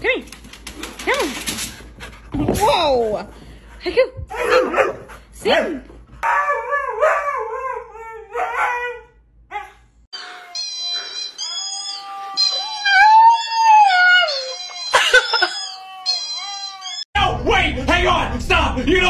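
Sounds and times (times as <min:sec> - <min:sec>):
dog howling: 0:06.2 - 0:17.1
puppy howling high-pitched: 0:06.2 - 0:17.1.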